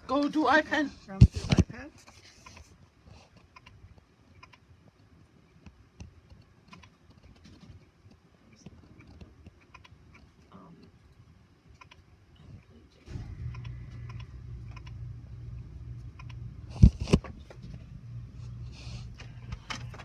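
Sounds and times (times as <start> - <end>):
printer mechanical hum: 13.0 - 20.0.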